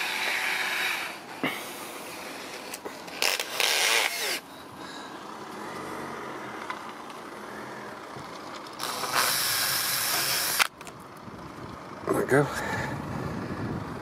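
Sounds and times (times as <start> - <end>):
cordless drill drilling plastic: 0.0 - 1.2, 3.1 - 4.4, 8.8 - 10.7.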